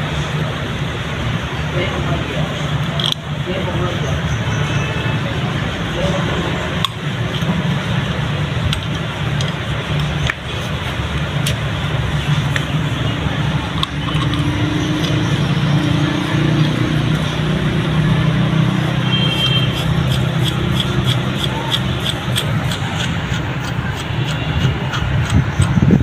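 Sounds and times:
socket wrench clicking: 6.8 - 7.5, 13.7 - 15.3, 19.4 - 25.8.

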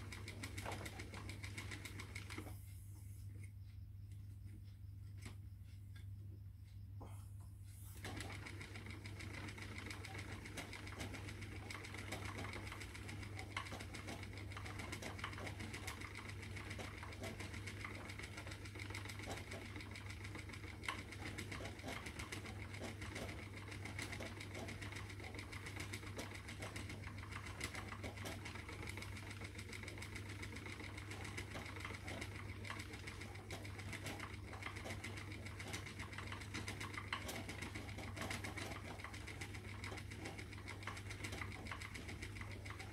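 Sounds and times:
spinning wheel whirring and clicking: 0.0 - 7.0, 7.6 - 42.9.

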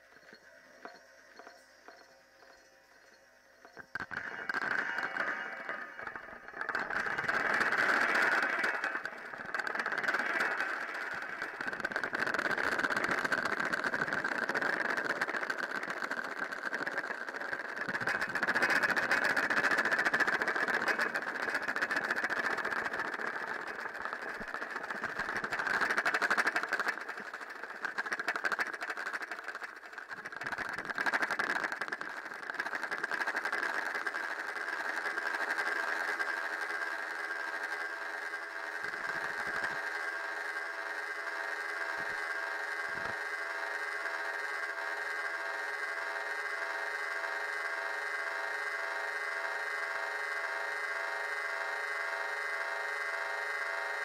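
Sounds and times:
crackling drone: 0.0 - 54.0
hum of steady tones: 0.0 - 54.0
high-pitched tone band: 3.7 - 7.6.

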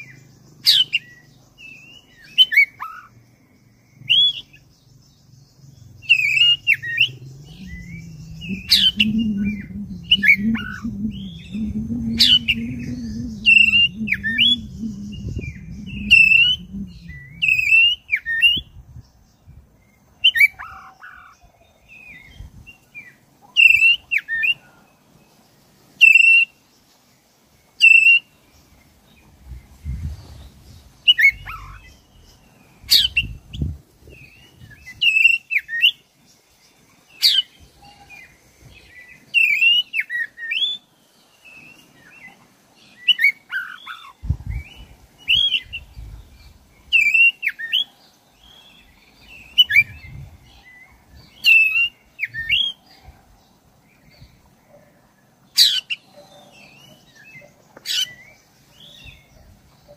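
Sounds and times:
bird singing whistled phrases: 6.1 - 18.6.

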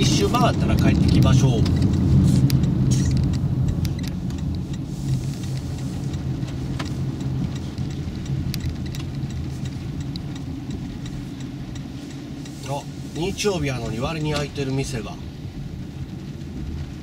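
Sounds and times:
tyre and drivetrain rumble: 0.0 - 17.0
faint ticks: 0.7 - 13.3.

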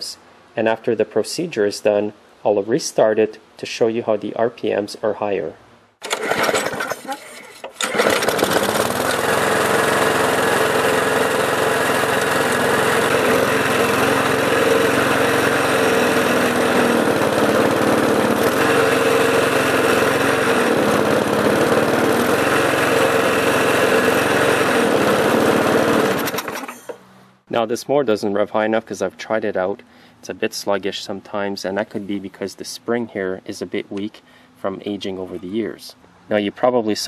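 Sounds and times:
lawn mower engine running: 6.0 - 27.1.

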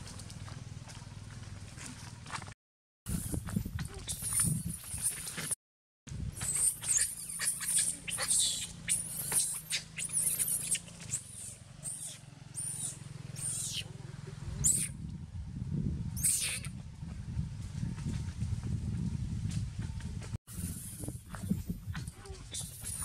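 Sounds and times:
macaques squealing: 3.2 - 5.5, 6.4 - 13.9, 14.6 - 14.9, 16.2 - 16.7, 20.6 - 23.0
low steady rumble: 12.9 - 22.0.

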